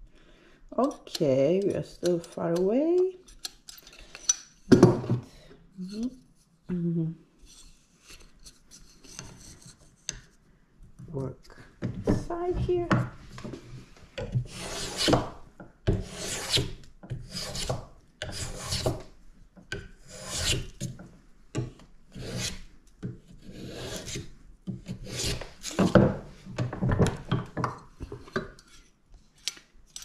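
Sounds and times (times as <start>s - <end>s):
hand plane cutting wood: 14.3s - 19.1s, 20.0s - 20.9s, 22.1s - 22.7s, 23.3s - 26.2s.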